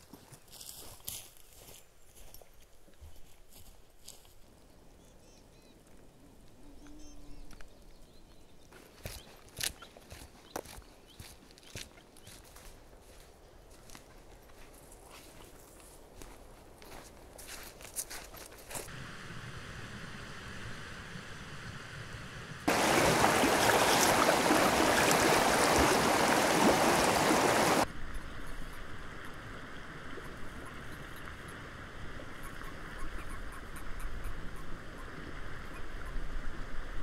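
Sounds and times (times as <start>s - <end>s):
faint steady water flow: 18.9s - 37.0s
loud rushing water stream: 22.1s - 27.9s.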